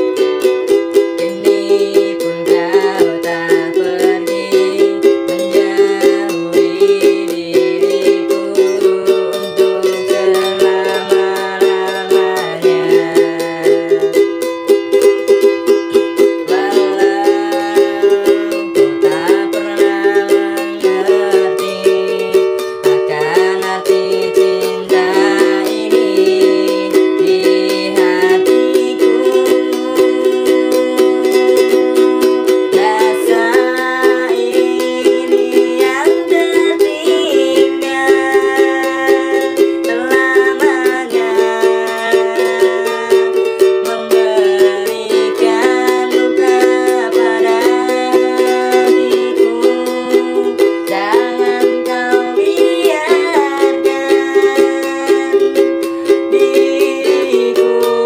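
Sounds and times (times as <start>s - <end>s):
ukulele strumming: 0.0s - 58.0s.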